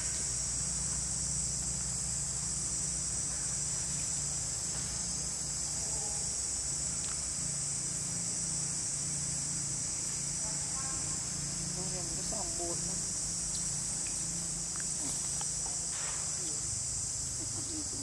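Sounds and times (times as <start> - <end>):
insects droning: 0.0 - 18.0.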